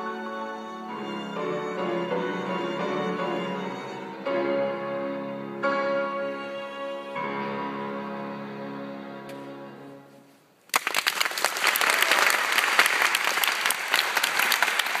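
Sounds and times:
piano violin and cello chord: 0:00.0 - 0:10.2
audience applause: 0:10.7 - 0:15.0.

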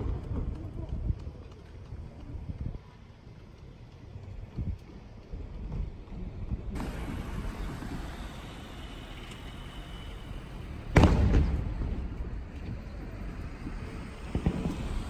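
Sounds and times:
firework boom: 0:06.8 - 0:15.0.

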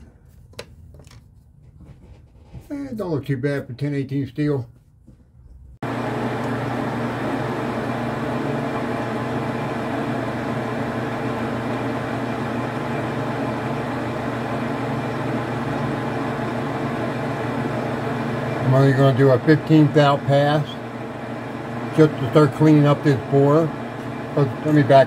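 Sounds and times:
metal lathe motor hum: 0:05.8 - 0:25.0.

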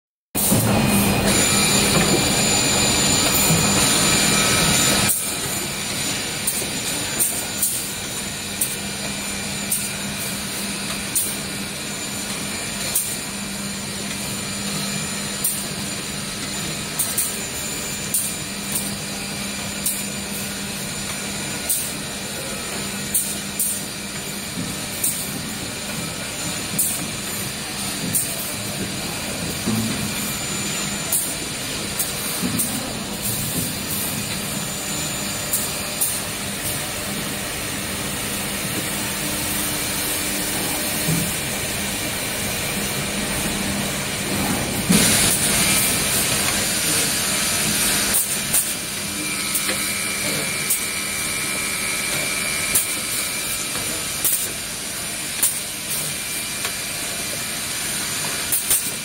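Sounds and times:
machine humming: 0:00.4 - 0:16.6, 0:24.0 - 0:54.2.

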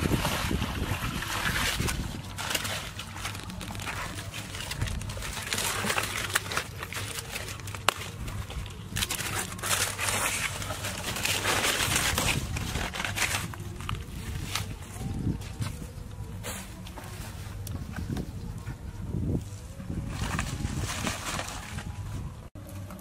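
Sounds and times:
dry leaves rustling and crackling: 0:00.0 - 0:23.0.

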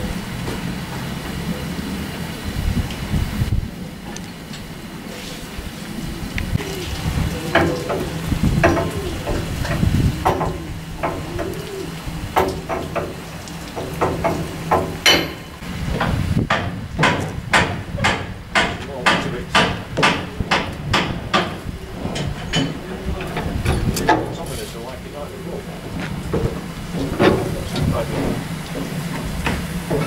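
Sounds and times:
metallic clanks and knocks: 0:07.4 - 0:25.0, 0:25.6 - 0:30.0.

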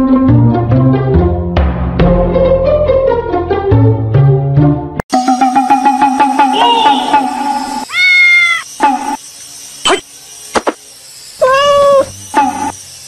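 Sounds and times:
plucked music: 0:00.0 - 0:07.8
cat meowing: 0:07.9 - 0:08.7, 0:11.4 - 0:12.1.

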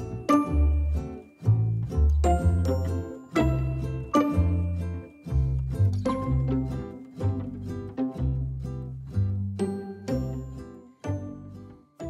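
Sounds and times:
light background music: 0:00.0 - 0:12.0.

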